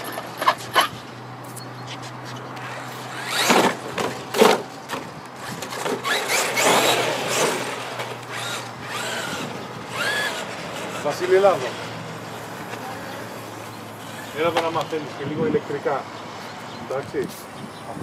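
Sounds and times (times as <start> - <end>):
tyre noise on asphalt: 0.0 - 15.1
electric motor whining: 2.6 - 4.4, 5.3 - 15.0.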